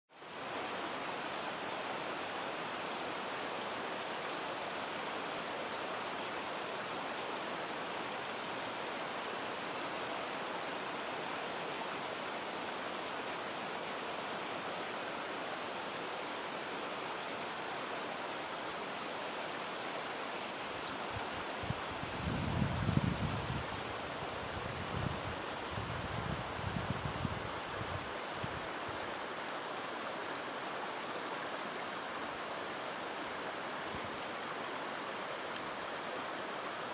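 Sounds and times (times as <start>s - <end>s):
stream rushing over stones: 0.1s - 36.9s.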